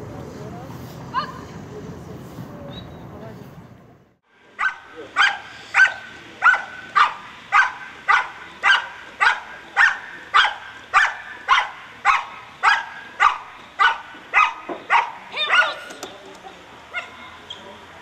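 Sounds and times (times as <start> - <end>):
dog barking: 4.6 - 15.8, 16.9 - 17.3.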